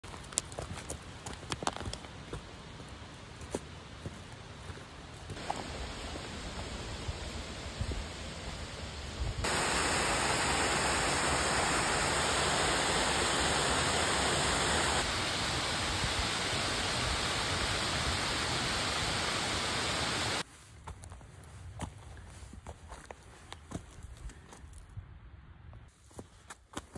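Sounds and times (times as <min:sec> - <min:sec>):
faint footsteps on a trail: 0:00.0 - 0:09.5, 0:20.4 - 0:25.0, 0:25.7 - 0:26.9
steady rushing noise: 0:05.3 - 0:20.4.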